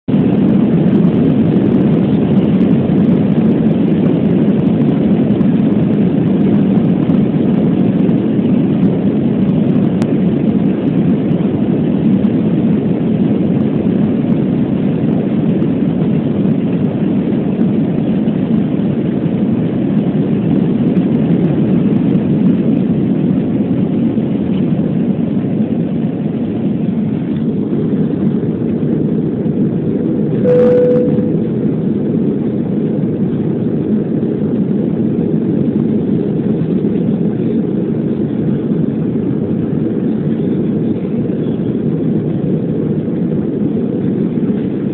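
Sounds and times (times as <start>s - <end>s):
jet engines at takeoff power: 0.1s - 44.9s
runway rumble: 31.2s - 44.9s.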